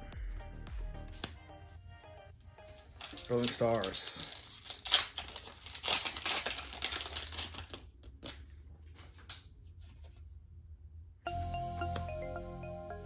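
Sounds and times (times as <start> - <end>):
foil wrapper crinkling: 2.8 - 8.6
cards rustling and clicking: 2.8 - 10.2
background music with mallet tones: 11.3 - 13.0.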